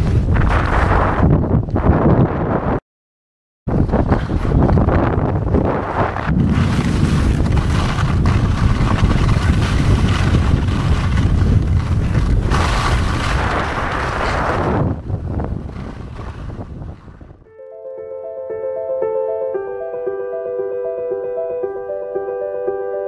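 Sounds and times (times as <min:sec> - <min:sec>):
wind rumble on microphone: 0:00.0 - 0:02.8, 0:03.7 - 0:17.5
skis sliding over snow: 0:05.7 - 0:16.7
soft piano music: 0:17.5 - 0:23.0.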